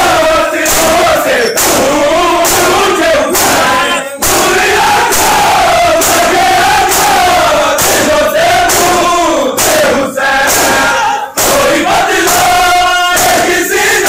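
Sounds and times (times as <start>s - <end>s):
men chanting together: 0.0s - 14.0s
hands slapping chests: 0.6s - 13.6s.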